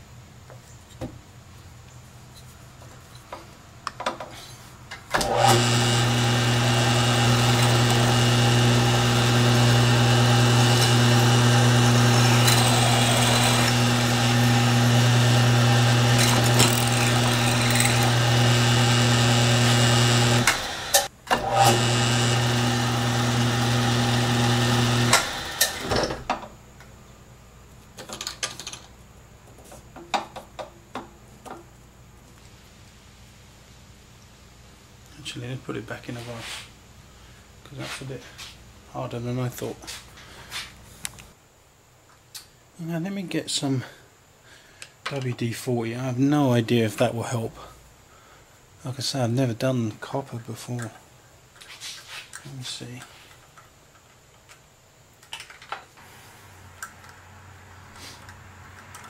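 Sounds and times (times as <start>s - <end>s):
drill motor humming: 5.2s - 26.0s.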